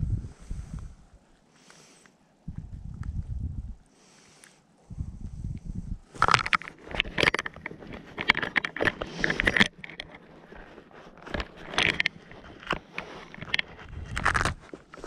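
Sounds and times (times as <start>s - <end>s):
rustling and crackling of handling: 6.0s - 15.0s.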